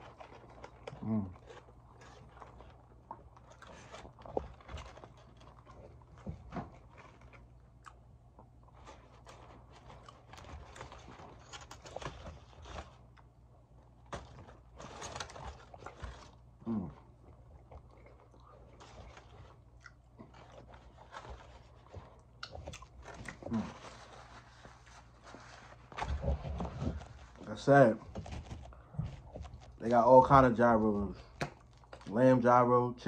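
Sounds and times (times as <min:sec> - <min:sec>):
paper and foil wrapper crinkling: 0:00.0 - 0:07.6, 0:08.7 - 0:13.2, 0:14.0 - 0:17.0, 0:17.6 - 0:32.7
chewing and biting: 0:00.0 - 0:24.4.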